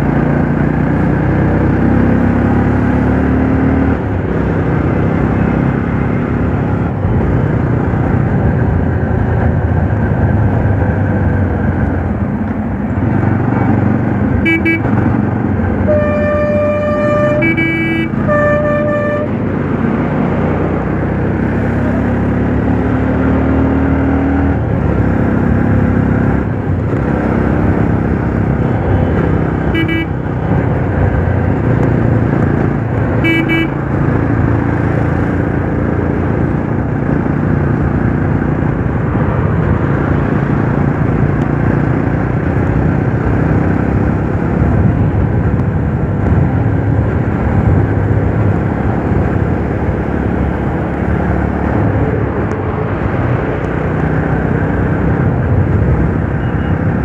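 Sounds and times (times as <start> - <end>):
vehicle horns honking: 14.4 - 15.1, 15.8 - 19.4, 29.0 - 30.3, 33.2 - 33.8.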